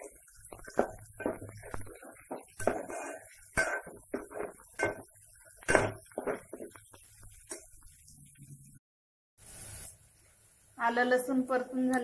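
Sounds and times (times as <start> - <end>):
steel spoon scraping a pot: 0.0 - 8.1.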